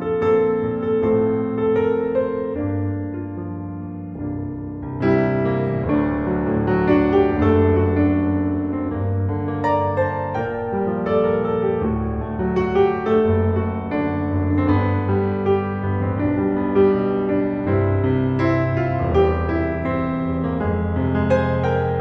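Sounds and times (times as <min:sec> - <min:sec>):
piano background music: 0:00.0 - 0:22.0.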